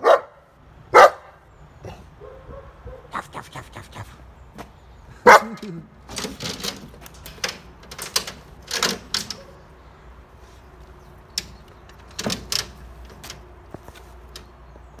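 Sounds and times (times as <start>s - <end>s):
metal chain rattling: 5.5s - 9.7s, 10.7s - 14.6s.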